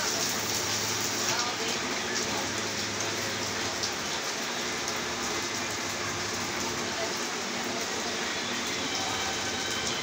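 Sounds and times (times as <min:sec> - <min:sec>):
heavy rain: 0:00.0 - 0:10.0.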